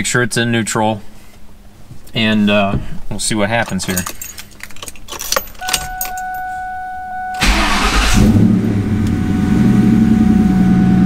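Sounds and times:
keys jangling: 3.6s - 6.6s
steady high tone: 5.6s - 11.0s
car engine cranking and idling: 7.2s - 11.0s.

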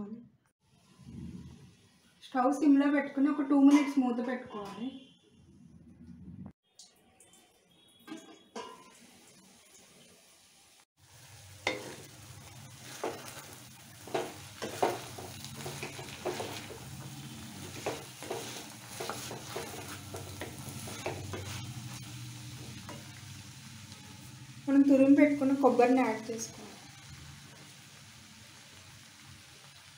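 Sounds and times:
food sizzling in a pan: 7.1s - 29.9s
spatula scraping and knocking pan: 11.6s - 23.2s.

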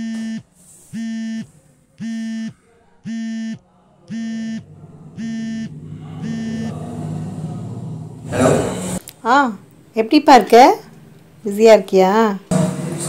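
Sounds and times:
phone buzzing tones: 0.0s - 2.5s, 3.1s - 6.7s
low hum: 4.1s - 9.0s.

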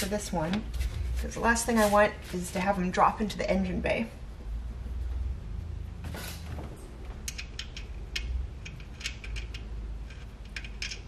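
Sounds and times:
low steady hum: 0.0s - 11.0s
small metallic clicks: 7.2s - 11.0s.

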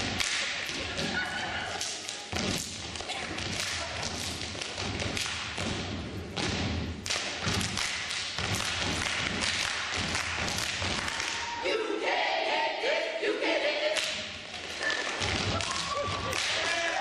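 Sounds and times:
people clapping: 0.0s - 5.6s, 7.0s - 11.6s, 14.0s - 17.0s.

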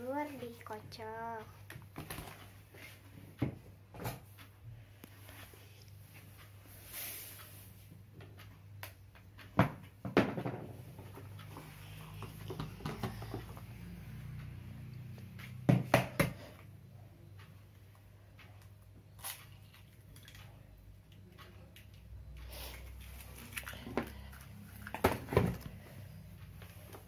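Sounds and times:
kitchen things knocking and clattering: 9.6s - 10.8s.

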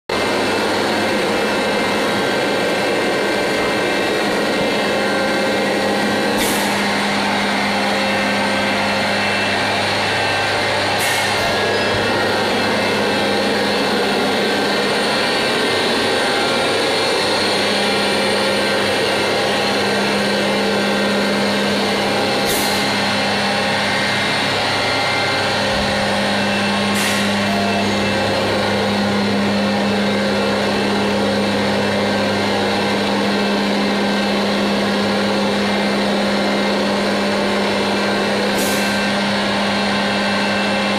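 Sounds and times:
machine humming: 0.1s - 40.9s
sharp air hisses: 6.3s - 6.9s, 11.0s - 11.8s, 22.4s - 22.9s, 26.9s - 27.4s.

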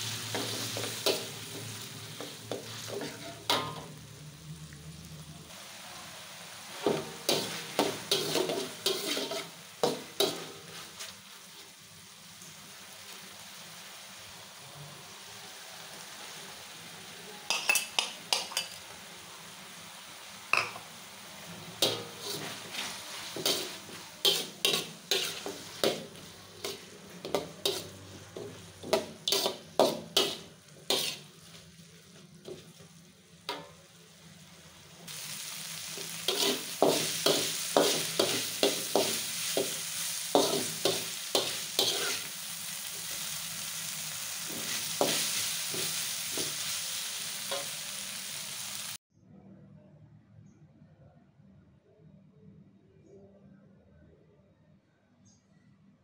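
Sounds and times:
spatula scraping a wok: 0.0s - 4.0s, 6.6s - 11.8s, 21.5s - 33.6s, 35.1s - 48.8s
oil sizzling: 0.0s - 49.0s.

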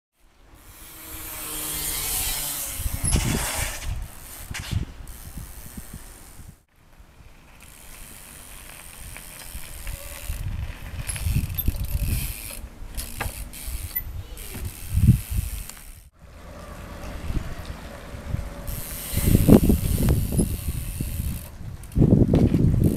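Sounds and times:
bicycle freewheel ratchet clicking: 0.6s - 3.2s, 4.1s - 6.5s, 7.5s - 16.2s, 18.4s - 22.9s
tyre noise on pavement: 0.6s - 22.9s
bike landing knocks: 11.0s - 15.0s.

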